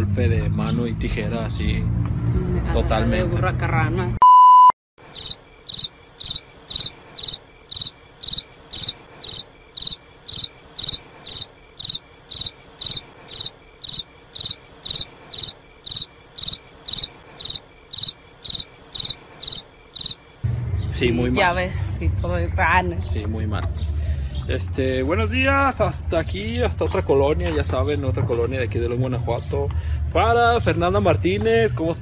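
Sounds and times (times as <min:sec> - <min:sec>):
electronic beep: 0:04.2 - 0:05.9
cricket chirping: 0:05.0 - 0:20.4.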